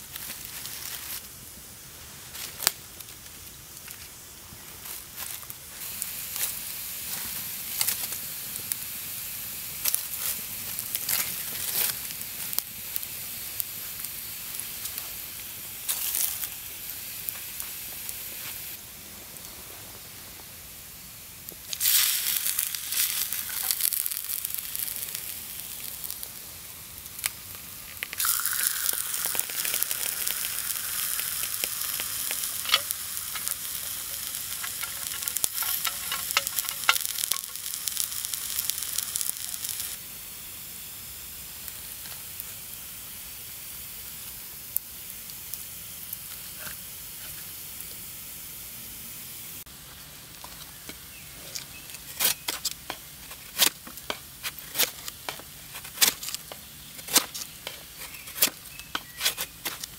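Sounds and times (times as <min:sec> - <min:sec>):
steak sizzling in a pan: 0:20.7 - 0:48.6.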